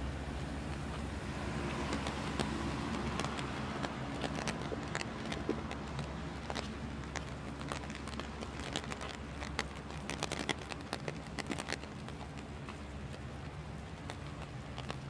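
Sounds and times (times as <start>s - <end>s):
city traffic hum: 0.0s - 15.0s
footsteps on wet sidewalk: 0.0s - 15.0s
rain drops ticking: 0.0s - 15.0s.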